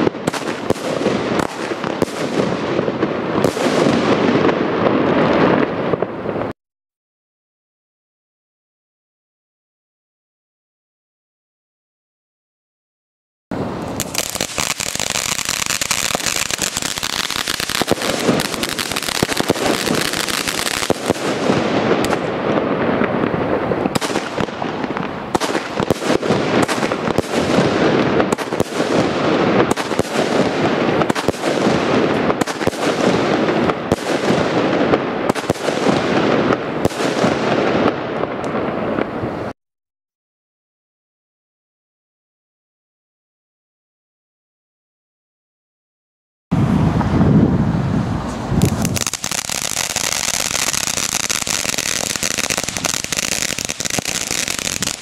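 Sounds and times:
firework crackling: 0:00.0 - 0:06.6, 0:13.5 - 0:39.6, 0:46.6 - 0:55.0
firework shots: 0:00.0 - 0:06.6, 0:13.5 - 0:39.6, 0:46.6 - 0:55.0
firework fountain hissing: 0:13.6 - 0:37.5, 0:46.6 - 0:55.0.

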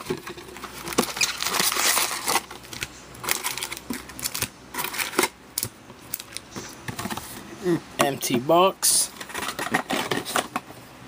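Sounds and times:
foil packs crinkling and rustling: 0:00.0 - 0:07.2, 0:09.1 - 0:10.6.

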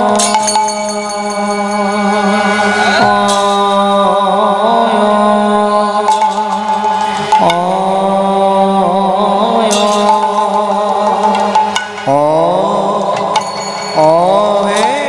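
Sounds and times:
cymbal strokes: 0:00.0 - 0:15.0
devotional singing with ornaments: 0:00.0 - 0:15.0
steady drone: 0:00.0 - 0:15.0.

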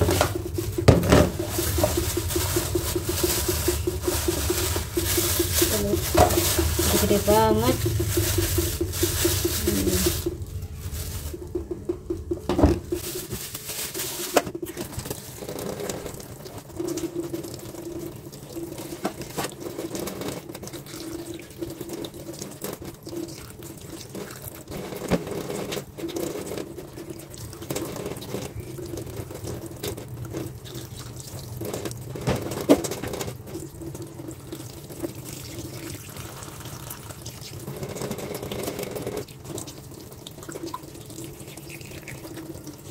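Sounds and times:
water splashing in a metal sink: 0:00.0 - 0:42.9
knocks against metal sink: 0:11.6 - 0:13.0.

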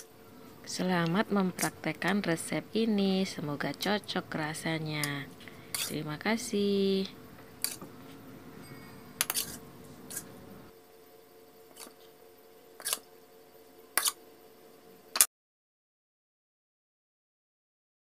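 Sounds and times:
faint steady hum: 0:00.0 - 0:15.3.

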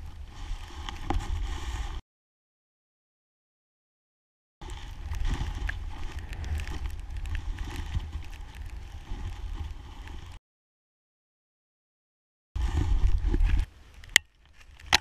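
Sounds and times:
skis hissing through powder snow: 0:00.0 - 0:02.0, 0:04.6 - 0:10.4, 0:12.6 - 0:13.7
wind rumbling on microphone: 0:00.0 - 0:02.0, 0:04.6 - 0:10.4, 0:12.6 - 0:15.0.

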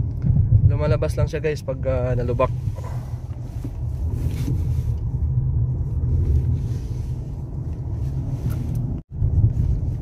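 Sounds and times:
car road and engine rumble: 0:00.0 - 0:10.0.

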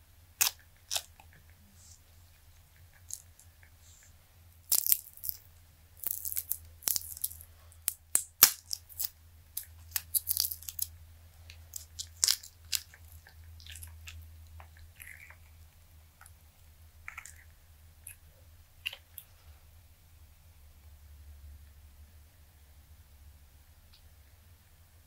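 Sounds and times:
low steady hum: 0:00.0 - 0:25.0
silicone mold crackling and snapping: 0:00.4 - 0:01.5, 0:02.7 - 0:03.8, 0:04.5 - 0:16.4.

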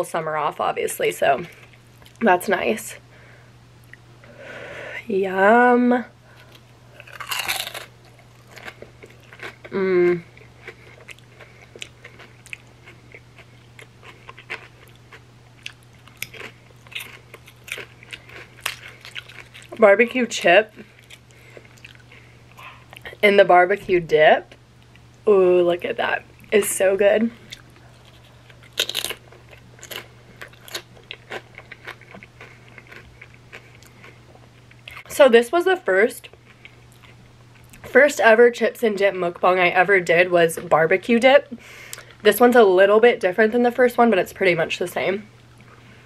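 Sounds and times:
faint low hum: 0:00.0 - 0:46.0
person chewing crunchy chips: 0:06.4 - 0:19.8, 0:20.8 - 0:23.2, 0:27.4 - 0:35.1, 0:36.3 - 0:37.8.

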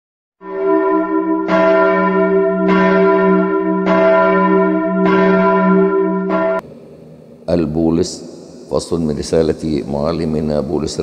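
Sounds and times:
church bell tolling: 0:00.4 - 0:06.6.

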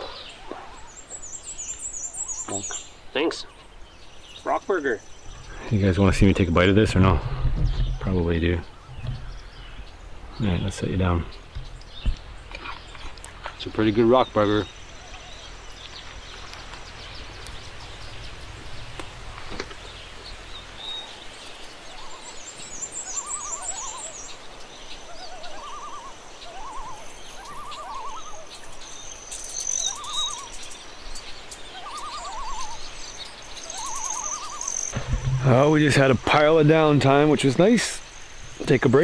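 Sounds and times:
low rumble: 0:11.2 - 0:21.3, 0:34.9 - 0:36.0
animal warbling call: 0:25.1 - 0:28.5, 0:33.6 - 0:36.3.

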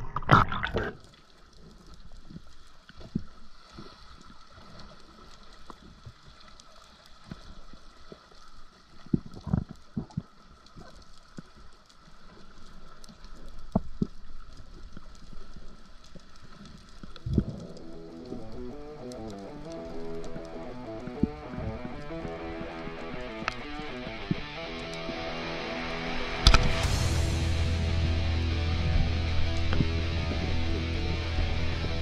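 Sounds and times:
low thumps and gurgles: 0:00.0 - 0:01.0, 0:17.2 - 0:18.7, 0:26.4 - 0:32.0
underwater crackle and hiss: 0:00.0 - 0:25.4.

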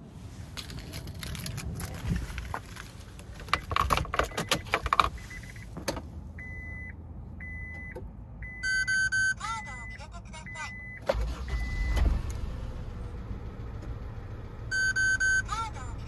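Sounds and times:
car keys jangling: 0:00.5 - 0:05.5
dashboard warning chime beeping: 0:03.6 - 0:05.8, 0:06.4 - 0:12.0, 0:14.7 - 0:16.0.

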